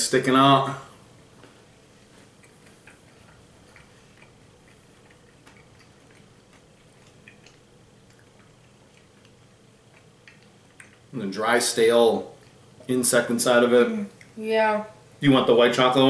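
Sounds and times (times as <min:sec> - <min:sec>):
crunchy chewing clicks: 0:02.0 - 0:11.2, 0:12.2 - 0:12.9, 0:14.1 - 0:14.4.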